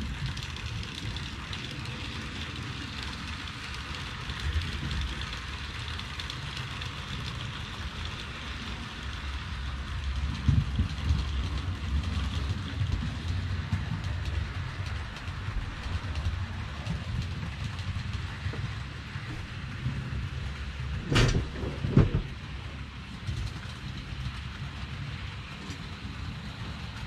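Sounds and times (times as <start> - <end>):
model train wheels rattling on track: 0.0 - 27.0
low rumble: 9.8 - 24.9.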